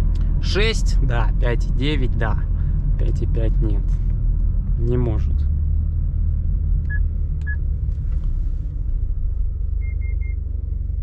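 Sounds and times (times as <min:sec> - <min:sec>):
car engine and road noise: 0:00.0 - 0:11.0
short electronic beeps: 0:09.8 - 0:10.4.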